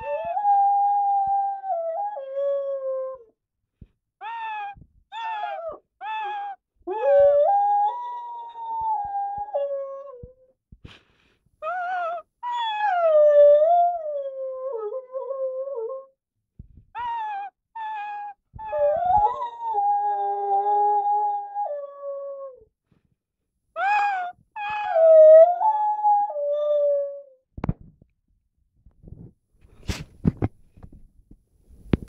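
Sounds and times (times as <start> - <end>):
dog howling: 0.0 - 3.3, 4.2 - 10.4, 11.6 - 16.1, 17.0 - 22.6, 23.8 - 27.3
dog yelping: 4.2 - 9.7, 11.6 - 13.1, 17.0 - 19.8, 23.8 - 25.6.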